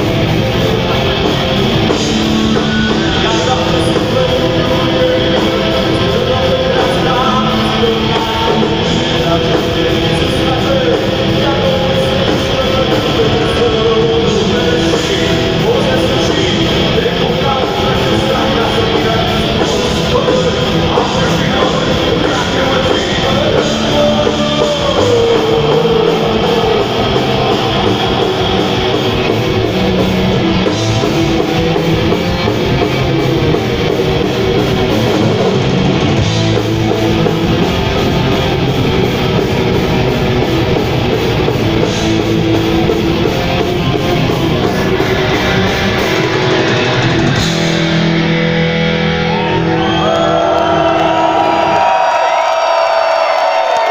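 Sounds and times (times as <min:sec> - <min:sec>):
distorted electric guitars: 0:00.0 - 0:53.9
drums: 0:00.0 - 0:53.9.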